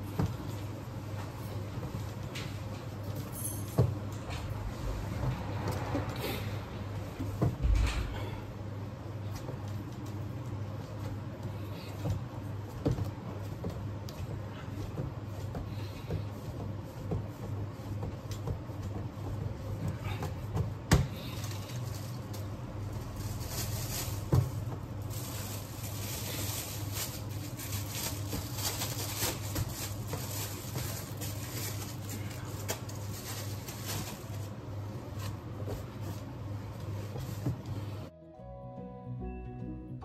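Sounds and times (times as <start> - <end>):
dough kneaded by hand: 0.0 - 38.1
plastic bag crinkling: 21.3 - 35.4.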